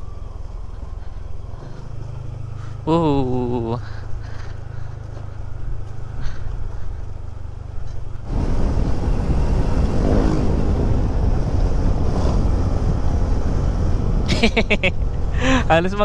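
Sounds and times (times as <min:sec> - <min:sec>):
wind noise on microphone: 0:08.2 - 0:15.6.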